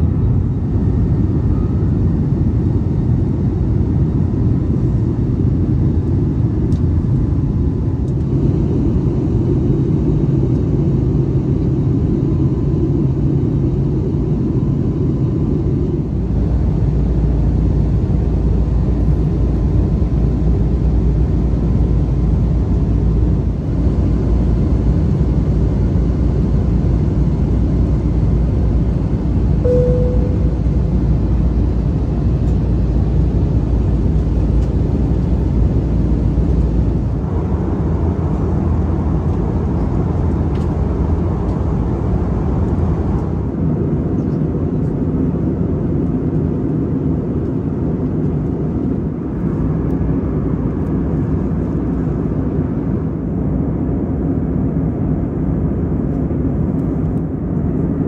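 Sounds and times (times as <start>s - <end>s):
jet engine cabin rumble: 0.0s - 58.0s
short single tone: 29.6s - 31.1s.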